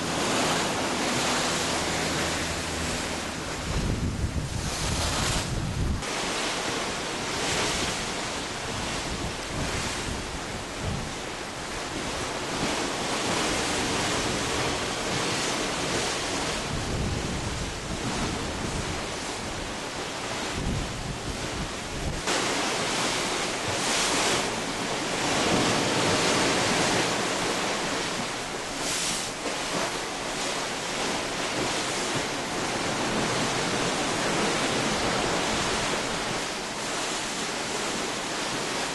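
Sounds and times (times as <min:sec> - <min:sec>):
churning sea water rushing: 0:00.0 - 0:38.9
wind on microphone: 0:00.0 - 0:38.9.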